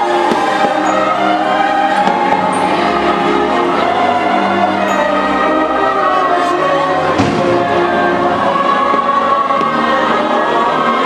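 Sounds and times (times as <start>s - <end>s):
orchestral music with choir: 0.0s - 11.0s
firework bang: 7.2s - 7.9s.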